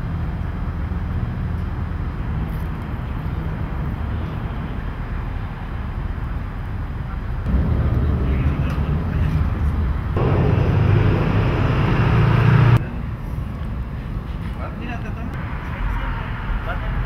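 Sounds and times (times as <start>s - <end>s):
low rumble: 7.4s - 12.9s.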